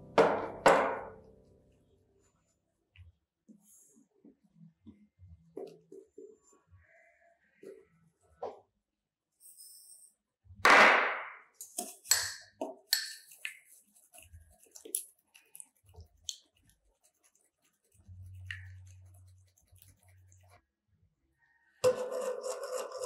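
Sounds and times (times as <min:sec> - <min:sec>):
fork beating egg whites in bowl: 0:12.8 - 0:20.6.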